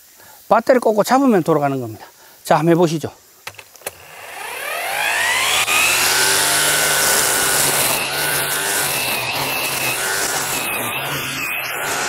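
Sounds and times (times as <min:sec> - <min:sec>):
string trimmer whining: 0:03.5 - 0:12.0.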